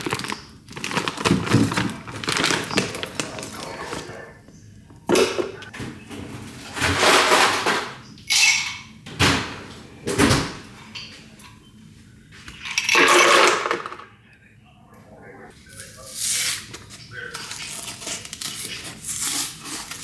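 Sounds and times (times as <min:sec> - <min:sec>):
dishes clattering and scraping: 0:05.0 - 0:11.7, 0:12.5 - 0:14.1.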